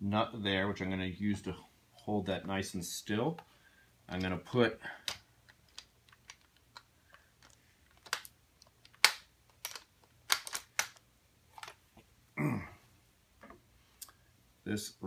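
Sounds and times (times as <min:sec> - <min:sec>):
person grunting: 0:12.4 - 0:12.8.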